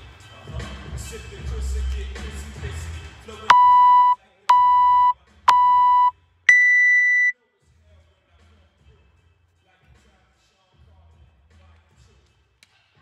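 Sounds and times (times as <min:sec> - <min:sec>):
long high timer beep: 0:03.5 - 0:07.3
short timer beeps: 0:03.5 - 0:07.3.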